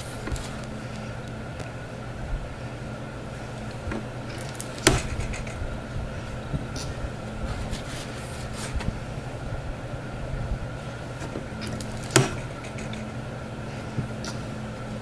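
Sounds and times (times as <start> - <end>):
steady low hum: 0.0 - 15.0
sharp click: 4.3 - 5.7, 11.6 - 13.1.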